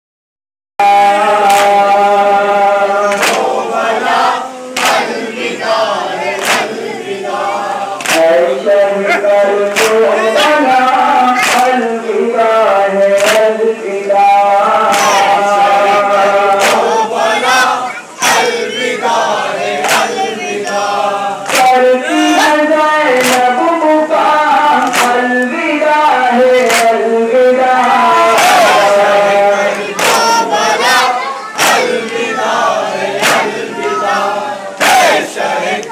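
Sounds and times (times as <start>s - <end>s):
men chanting a lament: 0.8s - 35.9s
hands slapping on chests: 3.1s - 3.6s, 4.8s - 5.5s, 6.3s - 6.8s, 8.0s - 8.4s, 9.6s - 10.0s, 11.3s - 11.8s, 13.2s - 13.5s, 14.9s - 15.3s, 16.5s - 17.0s, 19.8s - 20.8s, 21.5s - 21.8s, 23.2s - 23.8s, 24.8s - 25.2s, 26.6s - 27.0s, 29.7s - 31.0s, 31.6s - 32.6s, 33.2s - 33.6s.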